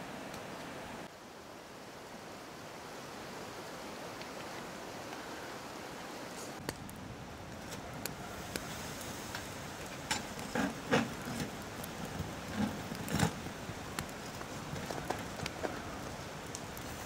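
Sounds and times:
steady background hiss: 0.0s - 17.0s
metal shovel scraping stove: 9.3s - 13.5s.

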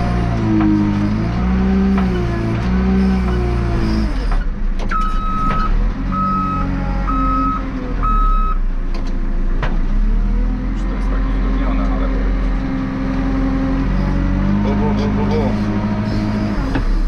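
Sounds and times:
backhoe diesel engine working: 0.0s - 17.0s
reversing alarm beeping: 4.9s - 8.6s.

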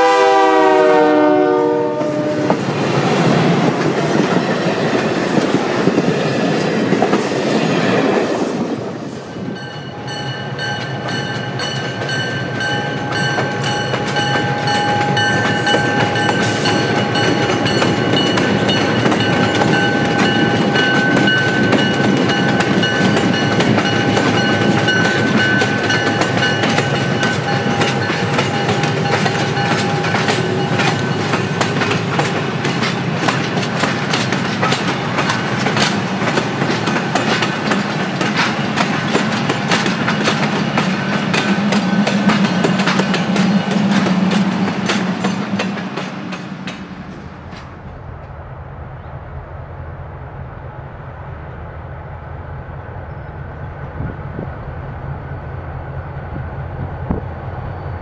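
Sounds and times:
train wheels clicking over rail joints: 10.6s - 48.4s.

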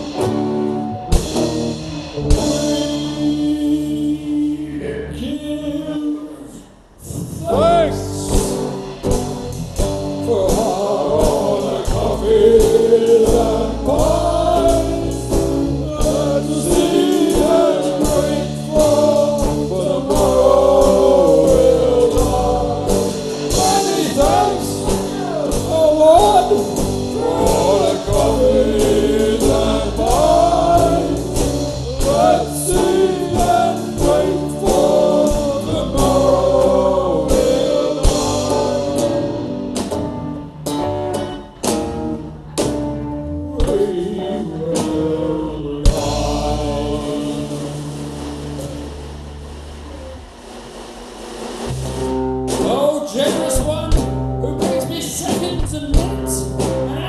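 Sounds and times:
drum kit: 0.0s - 4.9s, 7.0s - 57.0s
guitars: 0.0s - 57.0s
men singing together: 7.4s - 8.7s, 10.2s - 39.7s, 43.5s - 48.3s.

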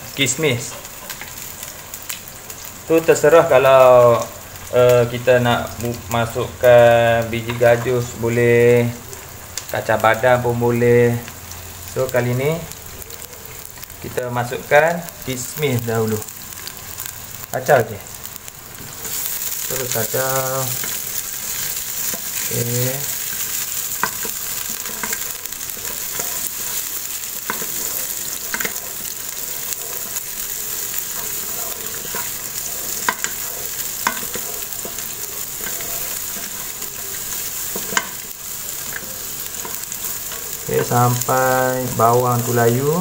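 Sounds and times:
food sizzling in hot oil: 0.0s - 43.0s.

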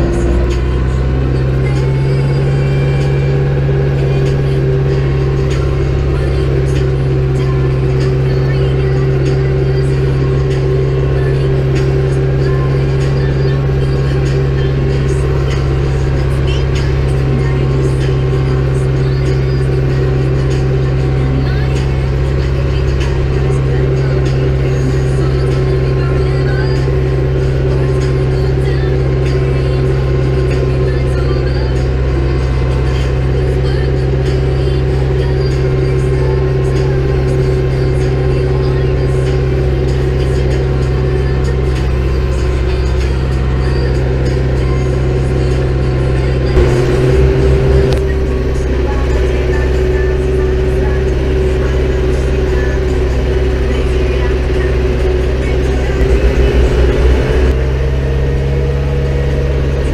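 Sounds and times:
tractor diesel engine drone: 0.0s - 59.9s.

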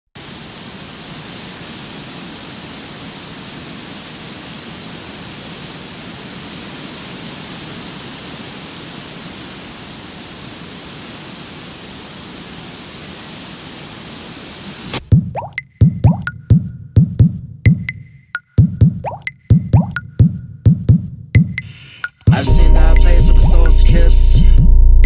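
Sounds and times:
steady rushing hiss: 0.2s - 15.0s.

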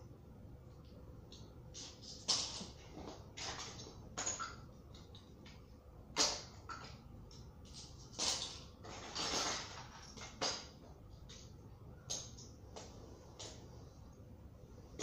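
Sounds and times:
small objects rustling and clattering: 7.7s - 10.7s.

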